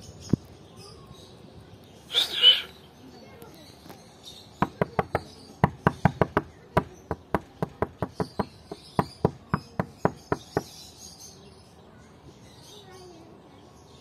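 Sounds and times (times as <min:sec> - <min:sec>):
rapid sharp knocks: 0:04.6 - 0:10.7.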